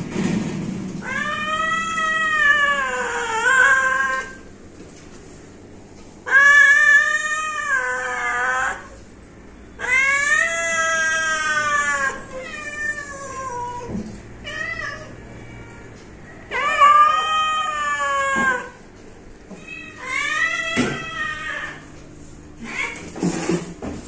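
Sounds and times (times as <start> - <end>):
cat meowing: 1.0 - 4.4, 9.8 - 15.9, 16.5 - 18.8, 19.5 - 21.9, 22.6 - 23.2.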